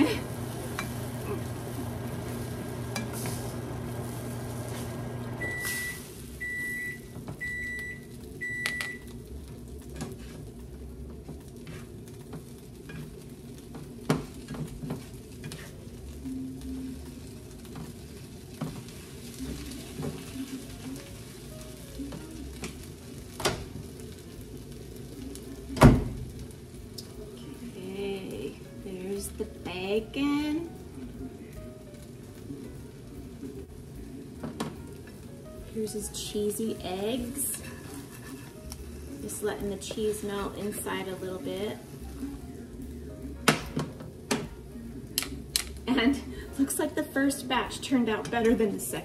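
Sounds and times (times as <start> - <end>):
food sizzling in frying pans: 0.0 - 49.0
spatula clinking and scraping pans: 37.3 - 40.9.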